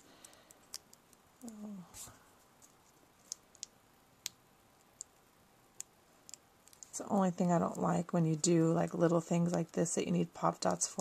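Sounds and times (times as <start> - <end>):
person humming: 1.4 - 2.0.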